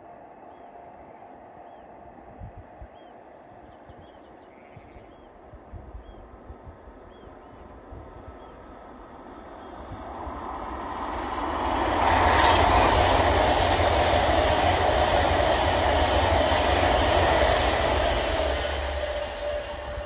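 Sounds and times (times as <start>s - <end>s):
electric train passing: 6.9s - 20.0s.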